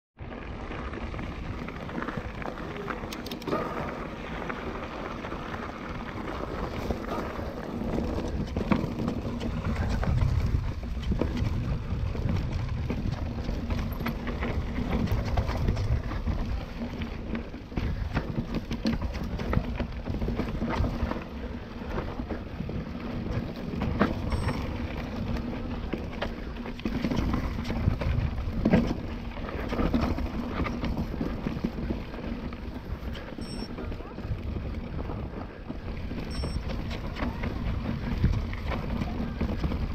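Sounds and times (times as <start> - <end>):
bike knocking and rattling: 0.2 - 39.9
bike tyres crunching on gravel: 0.2 - 39.9
wind on microphone: 6.8 - 16.8.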